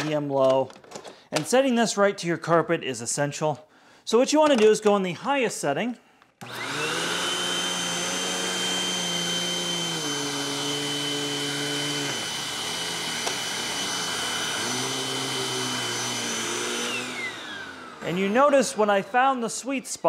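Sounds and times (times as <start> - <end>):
vacuum cleaner running: 6.4 - 20.0.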